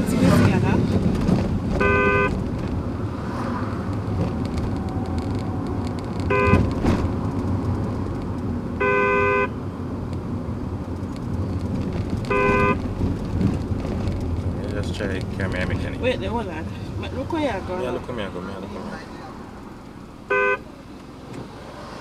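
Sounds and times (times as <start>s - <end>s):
car running noise: 0.0s - 22.0s
car horn honks from speaker: 1.8s - 2.4s, 6.3s - 6.7s, 8.8s - 9.6s, 12.3s - 12.8s, 20.3s - 20.7s.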